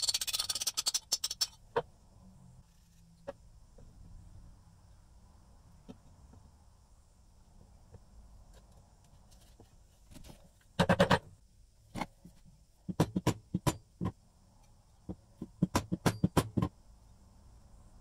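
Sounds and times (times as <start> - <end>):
sharp knocks and taps: 12.9 - 14.2, 15.0 - 16.7.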